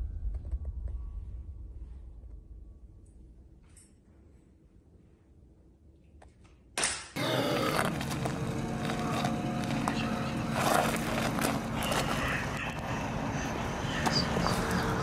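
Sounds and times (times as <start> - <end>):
car engine idling: 7.2 - 15.0.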